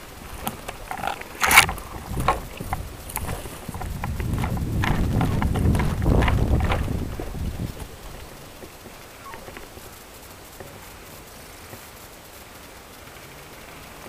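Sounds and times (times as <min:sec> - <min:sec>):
sharp crack: 0:00.0 - 0:10.0
footsteps on dry twigs: 0:00.0 - 0:10.1
clothing and gear rustling: 0:00.0 - 0:10.2
low rumble from movement: 0:00.0 - 0:11.0.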